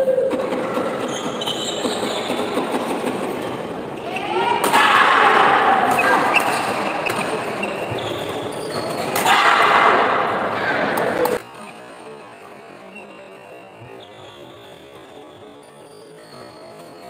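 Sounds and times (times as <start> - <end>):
spectators' voices: 0.0 - 17.0
shoe squeaks: 0.9 - 2.6, 6.0 - 9.2, 12.9 - 17.0.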